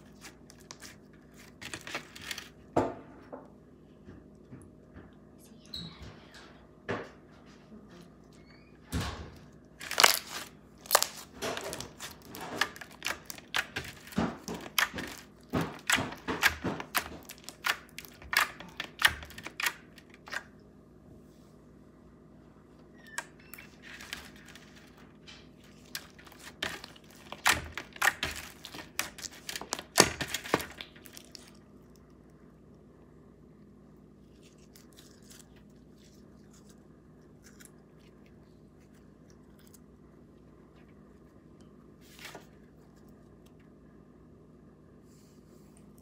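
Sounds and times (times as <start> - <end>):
slime crackling and squelching: 9.8 - 20.4, 25.6 - 32.2.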